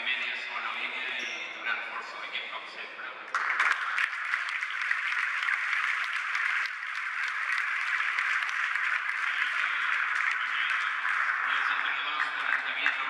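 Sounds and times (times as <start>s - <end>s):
crowd clapping: 3.3s - 13.0s.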